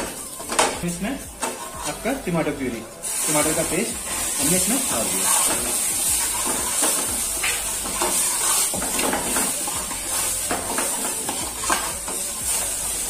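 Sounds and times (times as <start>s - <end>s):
ladle scraping a pan: 0.0s - 13.0s
tomato puree sizzling in a pan: 0.0s - 13.0s.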